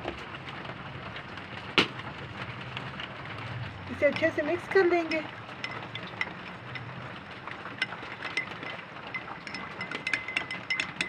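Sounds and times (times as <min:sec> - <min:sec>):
metal spoon clinking against glass: 0:05.6 - 0:06.9, 0:07.8 - 0:11.0.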